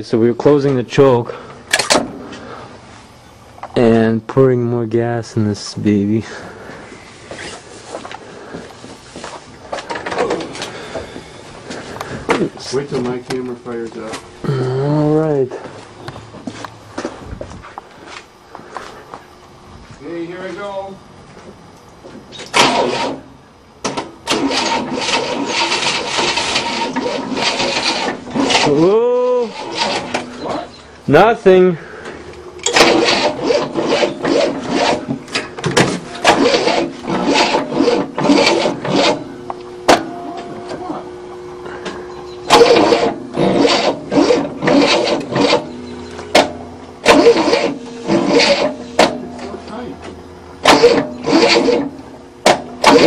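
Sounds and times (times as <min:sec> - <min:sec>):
starter motor cranking: 0:22.4 - 0:49.9, 0:50.6 - 0:53.0.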